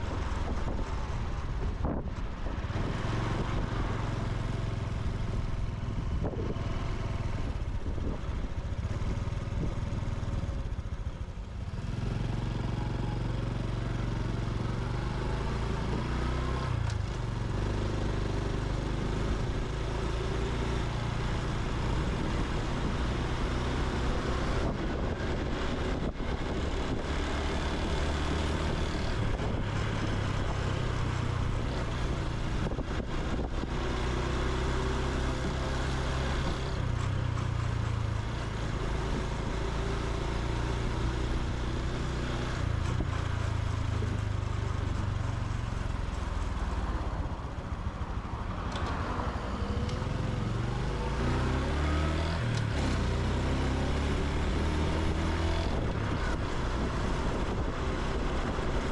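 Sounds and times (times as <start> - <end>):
motorcycle engine and exhaust: 0.0 - 58.9.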